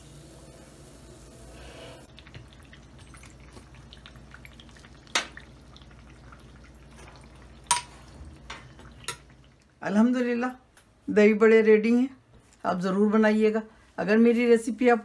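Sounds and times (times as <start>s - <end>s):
oil sizzling: 0.0s - 9.8s
soft wet dripping: 2.1s - 9.8s.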